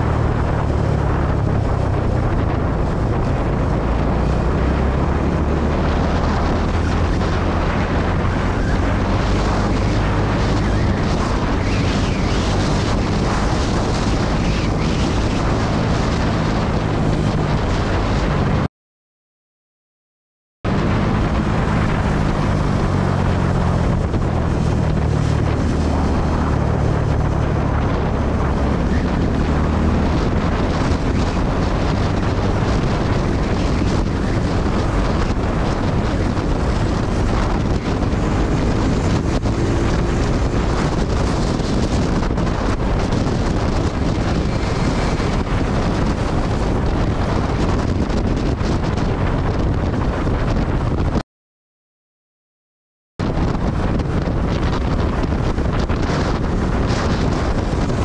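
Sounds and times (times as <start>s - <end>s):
wind noise on microphone: 0.0s - 18.7s, 20.6s - 51.2s, 53.2s - 58.0s
motorcycle engine running: 20.7s - 49.6s.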